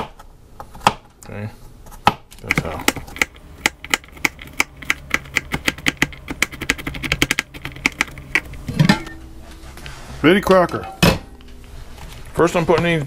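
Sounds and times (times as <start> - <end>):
knife chopping on plastic board: 0.0 - 1.1.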